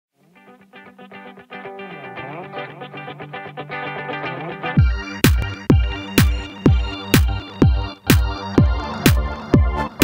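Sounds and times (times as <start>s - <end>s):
plucked guitar-like notes: 0.2s - 10.0s
electronic beat with kick drum: 4.8s - 10.0s.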